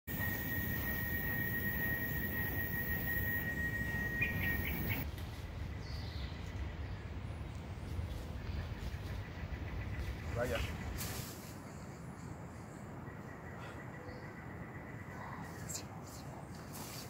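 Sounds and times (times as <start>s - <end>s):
high insect drone: 0.1s - 5.0s
bird chirps: 0.2s - 5.0s.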